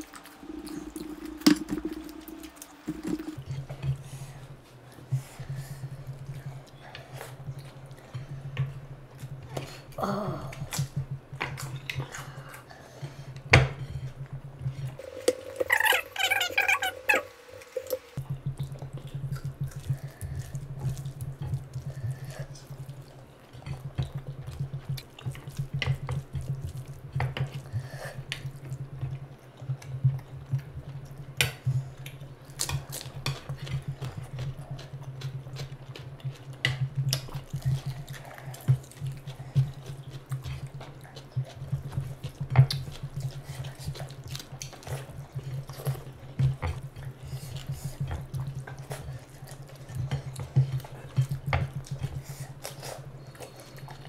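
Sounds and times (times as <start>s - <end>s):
wet chewing and smacking: 0.0s - 4.0s, 18.2s - 54.0s
low steady hum: 0.0s - 54.0s
hands squishing rice: 14.0s - 54.0s.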